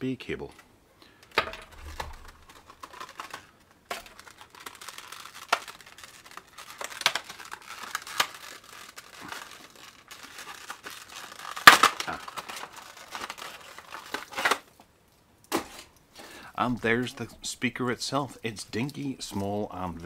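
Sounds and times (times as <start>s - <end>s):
plastic packaging crinkling: 1.1s - 14.8s.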